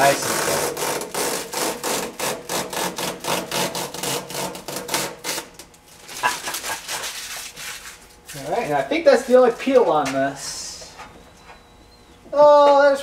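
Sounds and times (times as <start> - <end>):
plastic film being peeled off: 0.3 - 8.5.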